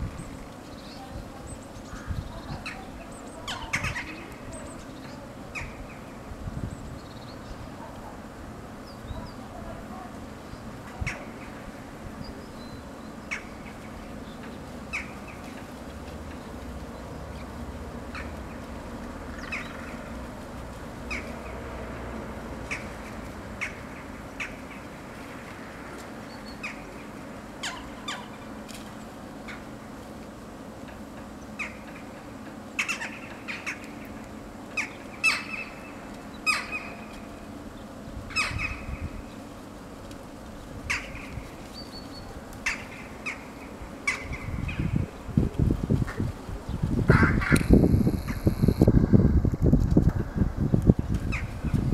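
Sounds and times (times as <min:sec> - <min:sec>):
crows calling: 0:32.8 - 0:34.0, 0:34.8 - 0:37.1, 0:40.8 - 0:41.6, 0:42.6 - 0:45.0, 0:47.1 - 0:48.8.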